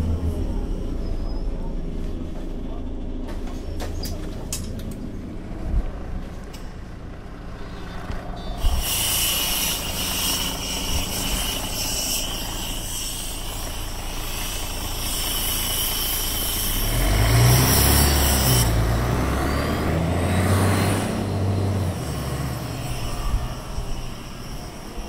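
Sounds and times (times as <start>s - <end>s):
bus engine hum: 0.0s - 25.0s
bus hiss: 8.5s - 19.9s, 21.1s - 25.0s.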